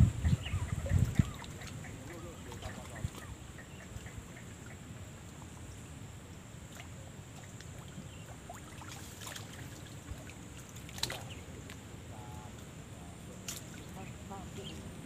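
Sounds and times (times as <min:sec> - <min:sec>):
water sloshing and trickling: 0:00.0 - 0:15.0
water drips: 0:06.7 - 0:11.8.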